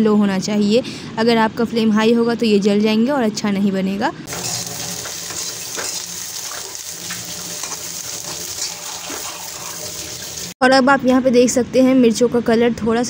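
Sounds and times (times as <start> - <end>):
spatula scraping pan: 4.3 - 10.3
chillies roasting hiss: 4.3 - 10.6.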